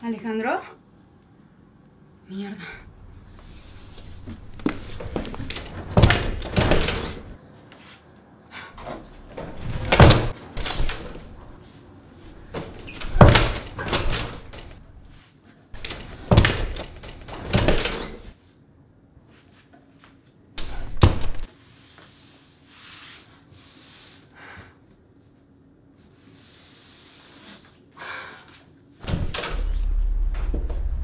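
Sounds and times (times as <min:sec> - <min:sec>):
heavy bangs on wooden door: 0:04.4 - 0:07.4, 0:09.6 - 0:11.4, 0:12.5 - 0:15.1, 0:16.0 - 0:18.0.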